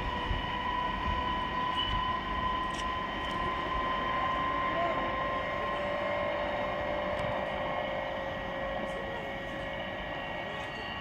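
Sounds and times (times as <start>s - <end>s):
train approaching: 0.0s - 11.0s
faint voices: 3.5s - 11.0s.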